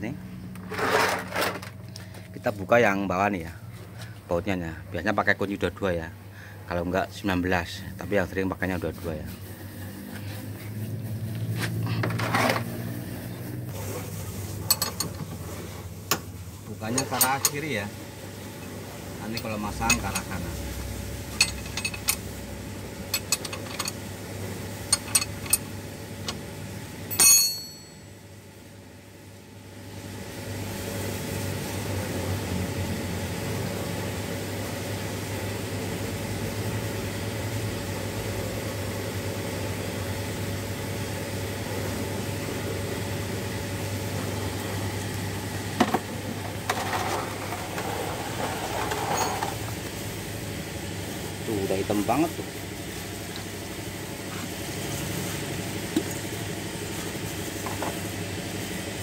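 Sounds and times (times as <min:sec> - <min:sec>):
low engine-like hum: 0:09.4 - 0:14.0
wrench clinking on metal: 0:21.4 - 0:22.2, 0:23.1 - 0:24.0, 0:24.9 - 0:25.7, 0:27.1 - 0:28.0
ringing metal clank: 0:27.1 - 0:28.1.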